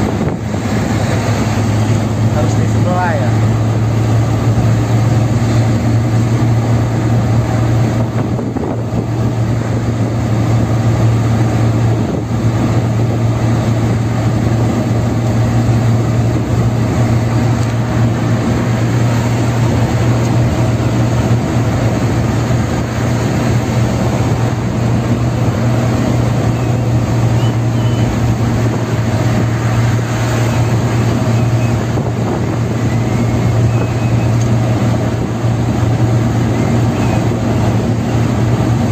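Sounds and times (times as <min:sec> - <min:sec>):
tyre and road noise: 0:00.0 - 0:38.9
vehicle engine hum: 0:00.0 - 0:38.9.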